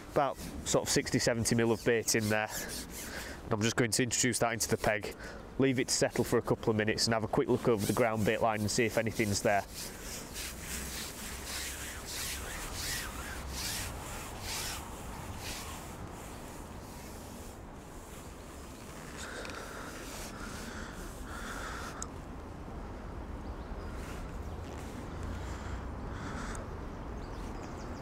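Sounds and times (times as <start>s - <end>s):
hands rubbing and scraping tackle: 0.0s - 22.1s
soft handling noise: 6.0s - 20.4s.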